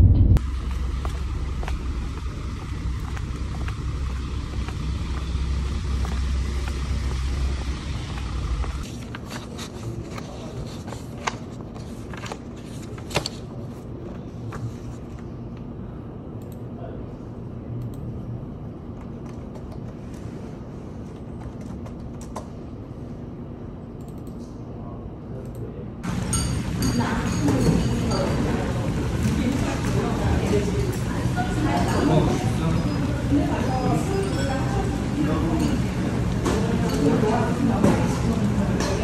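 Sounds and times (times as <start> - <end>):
low rumble inside car: 0.0 - 8.8
paper handling rustles: 8.8 - 15.3.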